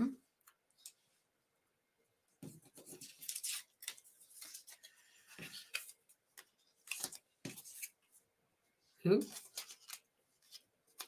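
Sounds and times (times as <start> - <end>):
paper rustling and scraping: 2.4 - 8.1, 9.2 - 11.0.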